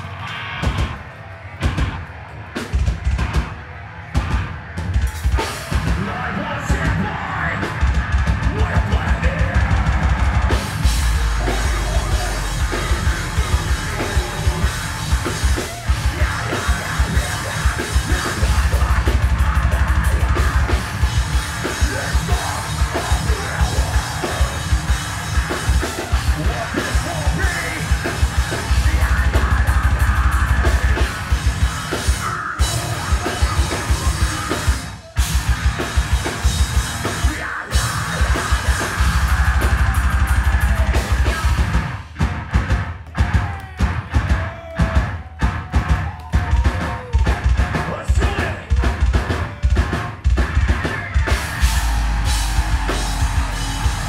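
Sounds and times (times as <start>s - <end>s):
metal band playing live: 0.0s - 54.0s
screamed vocals: 43.2s - 48.6s.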